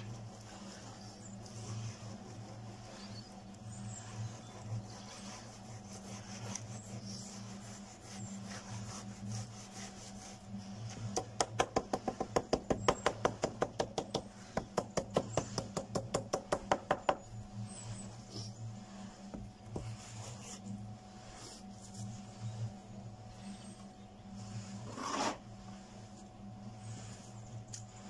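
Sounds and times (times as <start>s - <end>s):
sharp wooden knocks on concrete: 11.2s - 17.2s.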